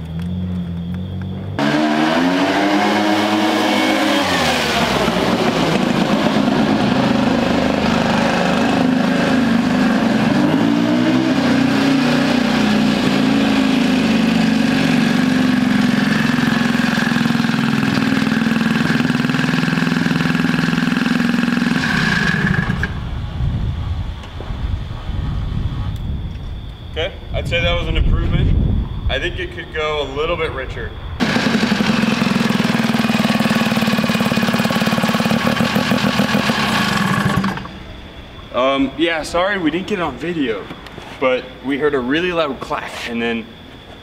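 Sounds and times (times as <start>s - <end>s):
engine revving: 0.1s - 23.0s, 31.2s - 37.9s.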